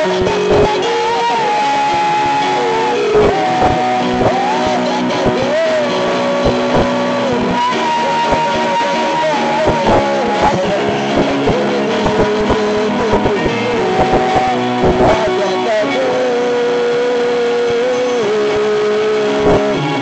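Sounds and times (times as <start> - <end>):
sliding melody line: 0.0 - 16.6
sustained chords: 0.0 - 18.3.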